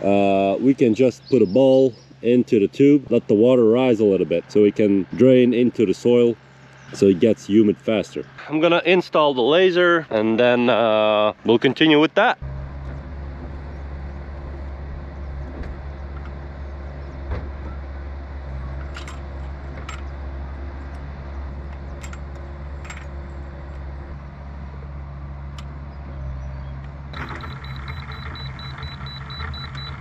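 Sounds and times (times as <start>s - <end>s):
heavy machinery engine running: 0.0s - 30.0s
high pulsing beep: 27.2s - 30.0s.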